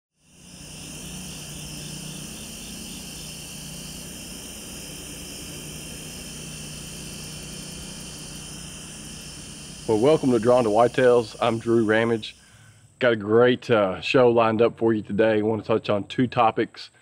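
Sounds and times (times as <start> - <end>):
pulsing insect call: 0.1 - 13.1
insects trilling: 0.2 - 13.2
steady low hum: 0.2 - 14.1.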